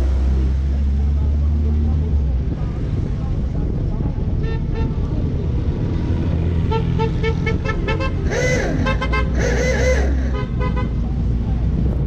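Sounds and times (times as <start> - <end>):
car engine and road rumble: 0.0 - 12.0
car horns tooting: 6.6 - 11.0.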